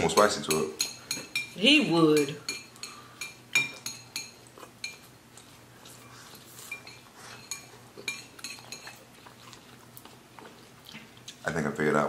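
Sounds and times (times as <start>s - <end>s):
chopsticks clinking on plates: 2.2s - 5.1s, 6.6s - 9.0s.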